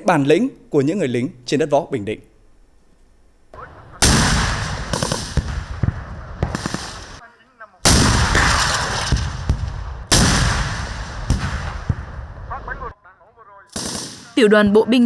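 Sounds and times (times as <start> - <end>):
lighter gunshot reports: 3.6 - 7.2, 7.8 - 12.8, 13.7 - 14.4
loud gunshots: 4.0 - 7.2, 7.8 - 12.7, 13.7 - 14.4.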